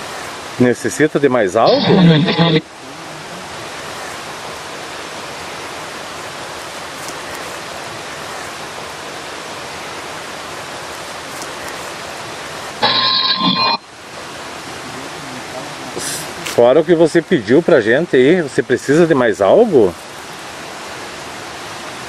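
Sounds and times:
steady hissing noise: 0:00.0 - 0:22.0
burst of steady tones: 0:01.6 - 0:02.7, 0:12.7 - 0:14.0.

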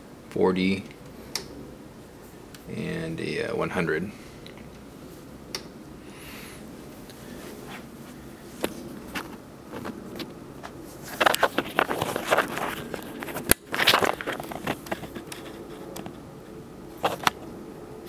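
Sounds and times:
sharp clicks: 0:01.0 - 0:01.5
handling rustling: 0:07.0 - 0:16.2.

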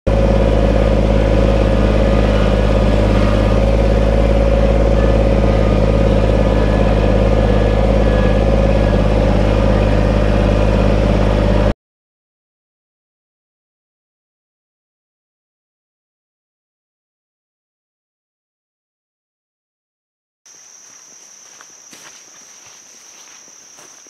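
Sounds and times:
tractor diesel engine running: 0:00.1 - 0:11.8, 0:20.5 - 0:24.0.

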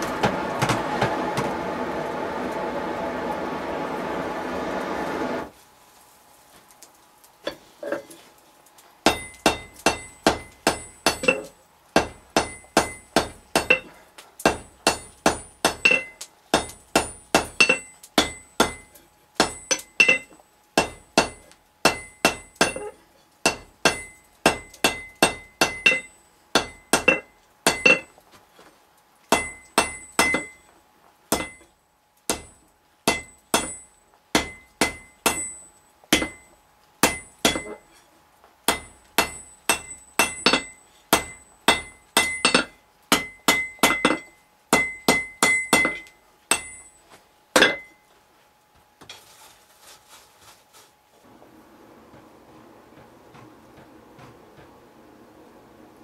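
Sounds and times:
hammer striking metal on anvil: 0:09.1 - 0:28.1, 0:29.3 - 0:30.6, 0:31.3 - 0:31.7, 0:32.3 - 0:37.9, 0:38.7 - 0:47.0, 0:47.6 - 0:48.0.

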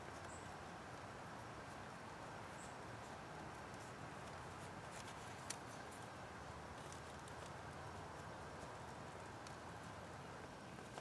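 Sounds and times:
steady background hiss: 0:00.0 - 0:11.0
wooden sticks clicking and rustling: 0:03.4 - 0:06.1.

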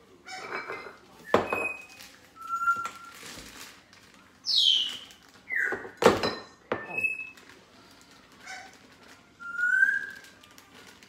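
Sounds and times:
sugar bag rustling: 0:01.8 - 0:05.6, 0:07.0 - 0:11.0.

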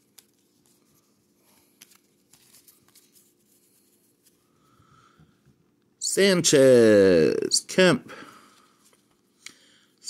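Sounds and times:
cardboard cards rustling: 0:00.0 - 0:04.4.

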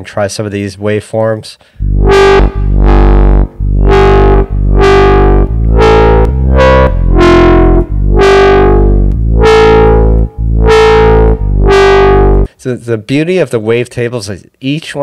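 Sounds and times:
distorted synth bass notes: 0:01.8 - 0:12.5.

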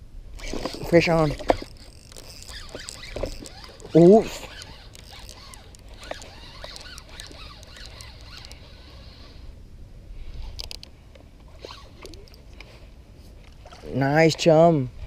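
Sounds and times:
fishing reel spinning: 0:00.4 - 0:09.4
high reel clicks: 0:00.4 - 0:09.4.

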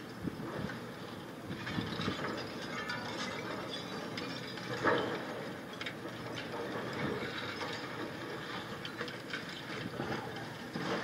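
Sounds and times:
demolition machine noise: 0:00.0 - 0:11.0
concrete cracking and debris falling: 0:01.6 - 0:05.2.

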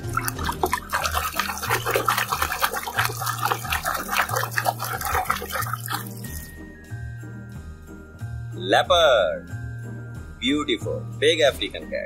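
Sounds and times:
hand splashing water in tub: 0:00.0 - 0:06.5.

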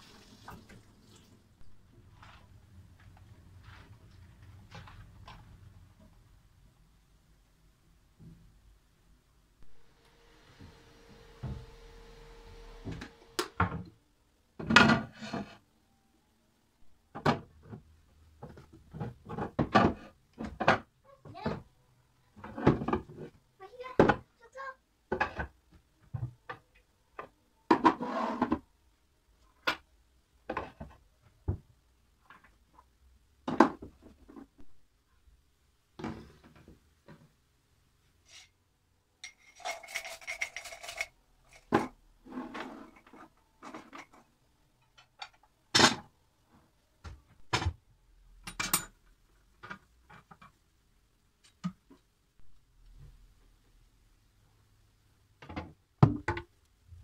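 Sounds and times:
bowls and containers clattering: 0:39.2 - 0:44.3.

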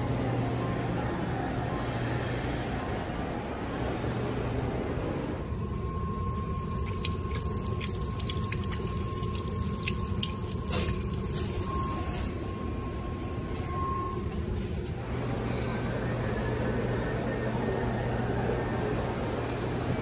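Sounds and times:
steady low hum: 0:00.0 - 0:19.9
faucet running into sink: 0:06.3 - 0:11.7
water splashing off hand: 0:06.4 - 0:11.7.

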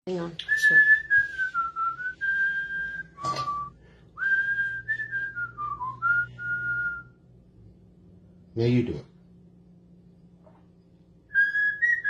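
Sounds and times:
whistled tune: 0:00.4 - 0:07.2, 0:11.3 - 0:12.0.

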